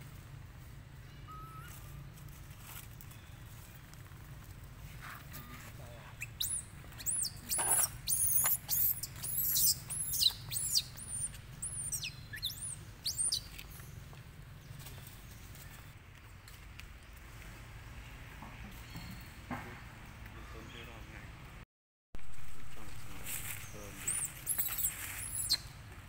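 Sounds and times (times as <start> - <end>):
monkey squealing: 1.3 - 2.0, 6.2 - 13.4, 24.1 - 25.6.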